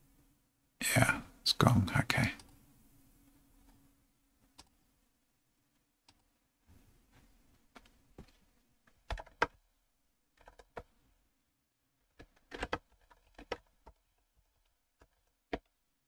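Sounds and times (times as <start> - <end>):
computer keyboard typing: 9.1 - 9.6, 10.4 - 10.9, 12.2 - 15.7.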